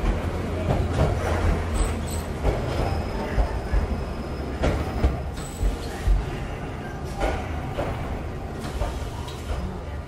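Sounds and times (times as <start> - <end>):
train wheels rumbling on rails: 0.0 - 10.0.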